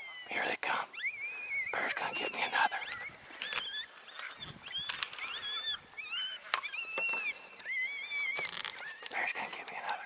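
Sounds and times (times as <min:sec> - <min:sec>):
coyotes yipping and howling: 0:00.0 - 0:10.0
sharp clicks: 0:02.8 - 0:05.4.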